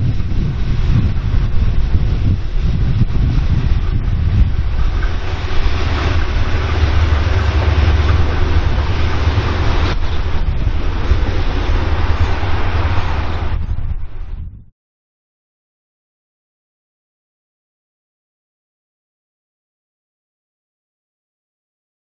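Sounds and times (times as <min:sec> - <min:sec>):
wheel and rail noise: 0:00.0 - 0:14.6
diesel locomotives rumbling past: 0:00.0 - 0:14.7.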